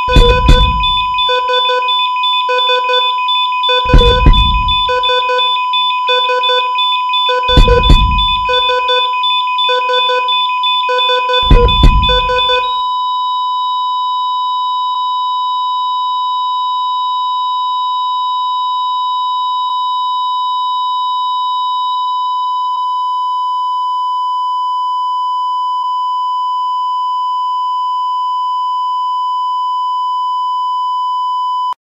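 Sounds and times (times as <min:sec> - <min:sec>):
patterned alarm beeps: 0:00.0 - 0:13.2
flatline alarm tone: 0:00.0 - 0:31.2
deep thud: 0:00.1 - 0:01.3, 0:03.9 - 0:05.0, 0:07.5 - 0:08.8, 0:11.4 - 0:12.7.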